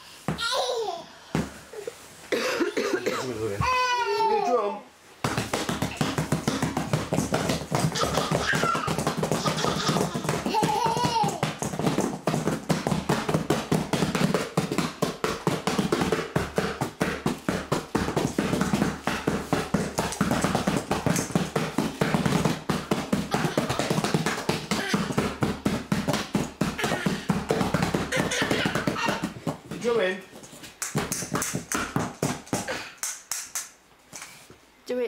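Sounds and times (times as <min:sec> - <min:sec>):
child drumming on cardboard box: 0:05.2 - 0:33.7.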